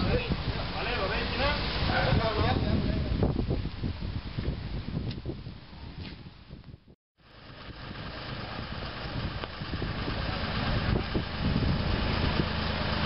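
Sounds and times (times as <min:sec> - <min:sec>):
crane engine humming: 0:07.2 - 0:13.0.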